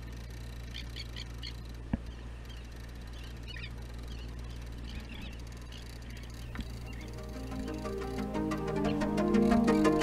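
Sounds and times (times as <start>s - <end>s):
boat engine humming: 0.0s - 10.0s
gulls calling: 0.0s - 10.0s.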